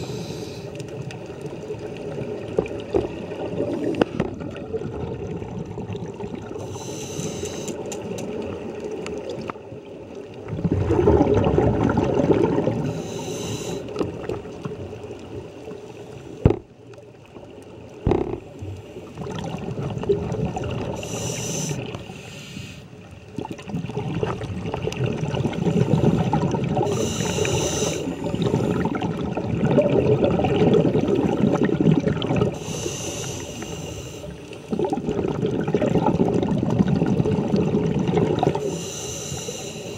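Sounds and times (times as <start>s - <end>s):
regulator hissing inhale: 0.0s - 0.8s, 6.6s - 7.9s, 12.8s - 14.0s, 21.0s - 22.9s, 25.9s - 28.9s, 32.6s - 34.7s, 38.6s - 39.9s
exhaled bubbles gurgling: 0.0s - 7.4s, 8.0s - 15.8s, 16.4s - 22.2s, 23.0s - 39.7s.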